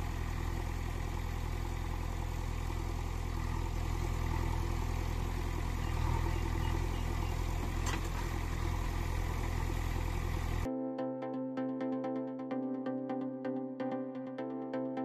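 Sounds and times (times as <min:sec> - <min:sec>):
engine-like drone: 0:00.0 - 0:10.7
electronic music: 0:10.7 - 0:15.0.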